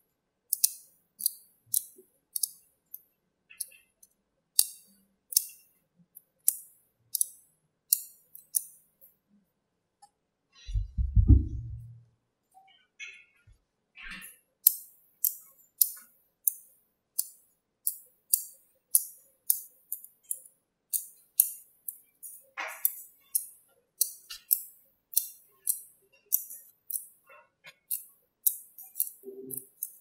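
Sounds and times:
magnetic balls clicking together: 0.5 - 3.8, 4.6 - 8.8, 14.1 - 30.0.

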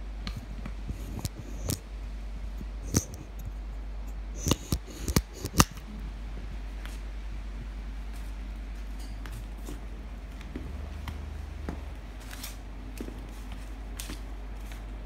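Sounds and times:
steady low hum: 0.0 - 15.0
ball and shoes tapping on tiled floor: 8.8 - 14.9.

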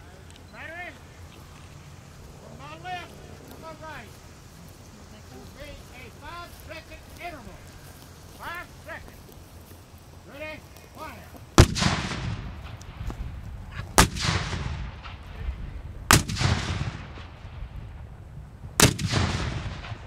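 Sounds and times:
cannon booms with rolling rumble: 11.6 - 20.0.

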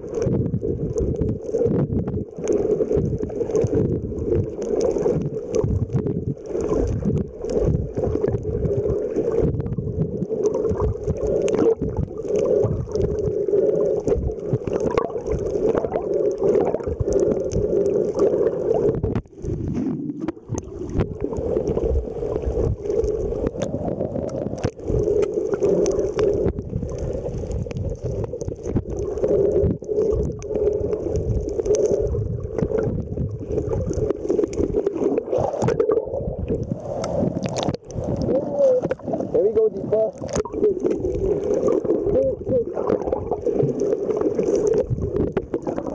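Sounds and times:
underwater sloshing and rumbling: 0.0 - 45.9.

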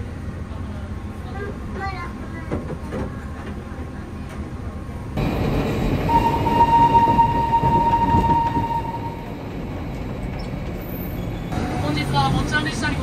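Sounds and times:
train rumble: 0.0 - 13.0
train whistle: 6.1 - 9.3.

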